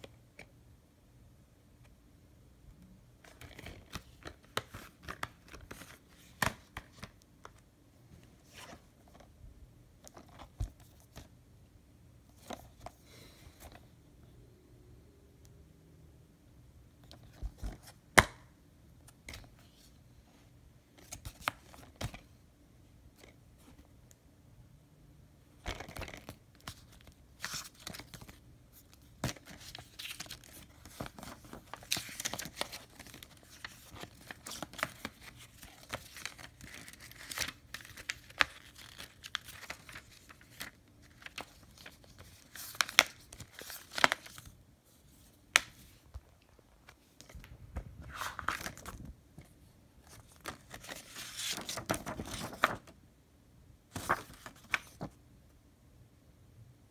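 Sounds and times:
paper rustling and crinkling: 25.6s - 46.1s, 46.9s - 53.0s, 53.9s - 55.2s.

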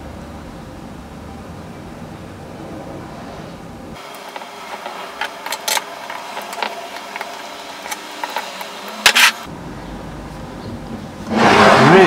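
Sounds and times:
multi-tool clicking on metal: 4.1s - 9.5s.

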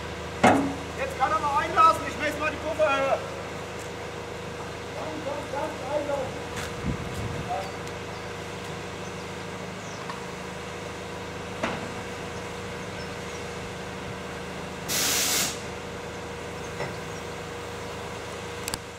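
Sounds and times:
diesel engine droning: 0.0s - 18.9s
compressed air hiss: 14.9s - 15.7s.

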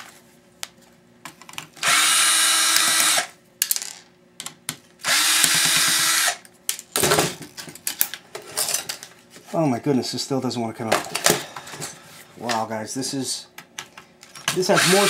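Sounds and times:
cordless drill motor: 1.8s - 3.3s, 5.0s - 6.4s, 14.7s - 15.0s.

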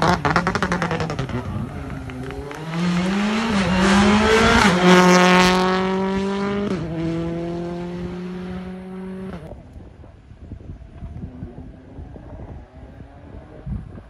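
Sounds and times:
rally car accelerating past: 0.0s - 9.5s.

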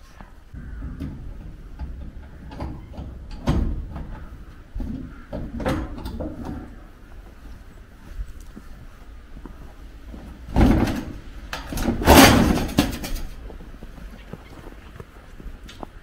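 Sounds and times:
metal gate knocking and rattling: 0.6s - 6.9s, 10.5s - 13.4s.

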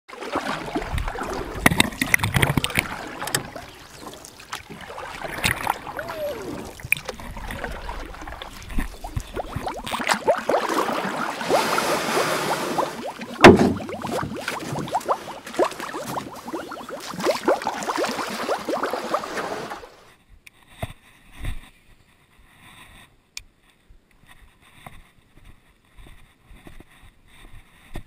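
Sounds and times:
water splashing and sloshing: 0.1s - 20.2s.

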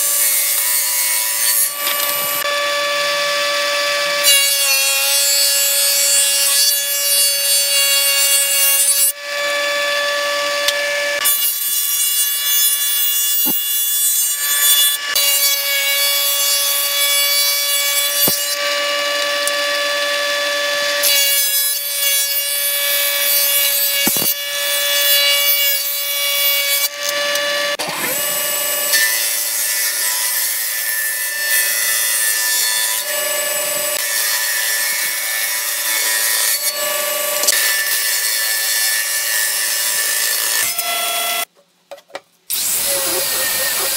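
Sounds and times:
planer whining: 0.0s - 12.0s, 12.6s - 21.5s, 42.5s - 43.9s
planer cutting boards: 0.0s - 41.5s, 42.5s - 43.9s.

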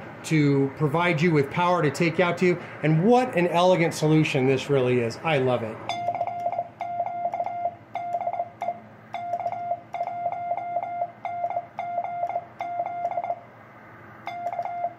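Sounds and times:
morse code beeps: 5.9s - 13.4s, 14.3s - 14.9s.

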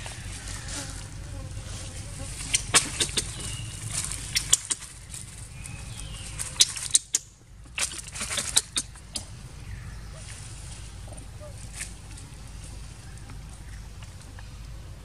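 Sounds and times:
footsteps crunching dry leaves: 0.0s - 6.9s.

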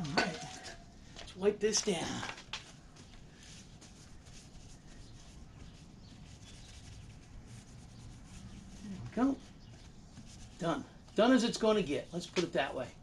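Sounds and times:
paper towel rubbing metal: 3.0s - 12.8s.

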